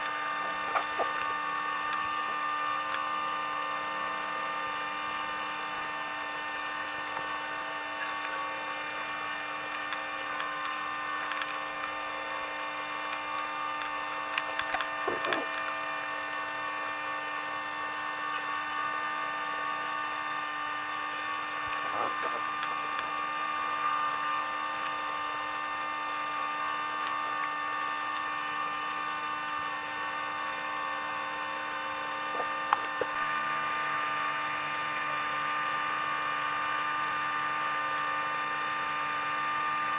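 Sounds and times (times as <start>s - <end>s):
boat engine droning: 0.0s - 13.4s, 20.5s - 25.9s.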